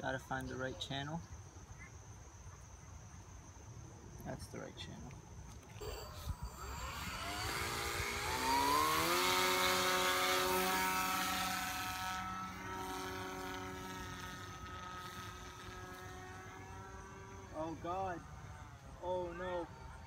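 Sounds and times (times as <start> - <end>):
electric motor and propeller whine: 5.6 - 20.0.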